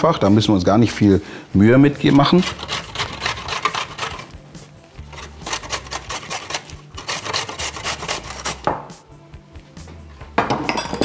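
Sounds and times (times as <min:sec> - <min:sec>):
carrot rasping on metal grater: 0:02.1 - 0:04.3, 0:05.0 - 0:08.6.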